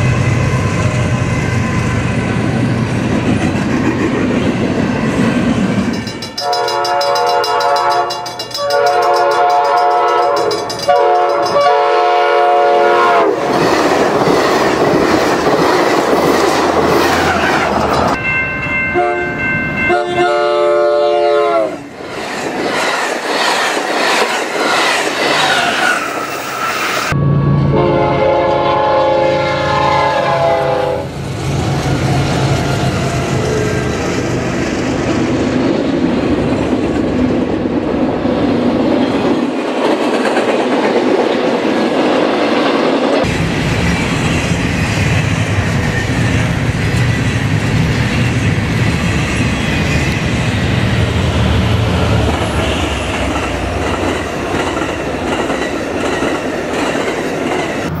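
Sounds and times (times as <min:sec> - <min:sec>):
passing train running noise: 0:00.0 - 0:58.0
clattering train wheels: 0:03.1 - 0:12.4, 0:13.3 - 0:19.8, 0:21.9 - 0:27.2, 0:38.4 - 0:58.0
diesel locomotive horns: 0:06.4 - 0:13.4, 0:18.9 - 0:22.0, 0:27.1 - 0:31.2, 0:50.9 - 0:53.8.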